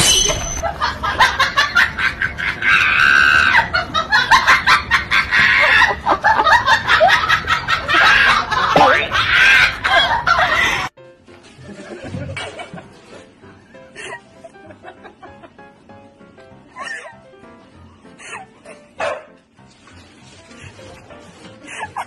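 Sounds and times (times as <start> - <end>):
person cackling with laughter: 0.6 - 10.9.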